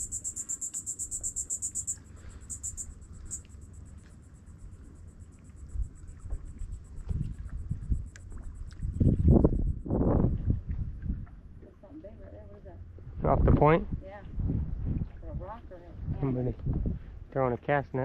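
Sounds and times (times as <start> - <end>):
insect chirping: 0.0 - 10.2
low rumble of wind: 0.0 - 18.0
water: 0.0 - 18.0.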